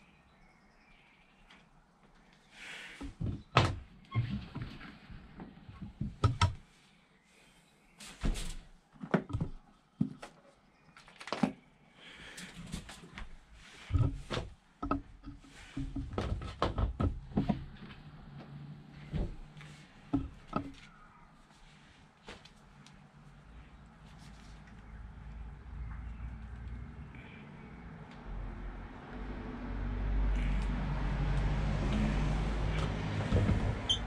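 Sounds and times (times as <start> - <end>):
hoses rustling and knocking: 3.0 - 6.7, 8.0 - 10.3, 12.4 - 21.0, 31.7 - 34.0.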